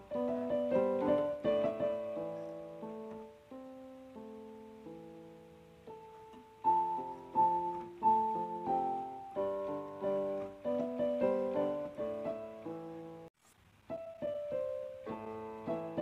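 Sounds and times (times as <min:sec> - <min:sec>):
piano melody over chords: 0:00.0 - 0:16.0.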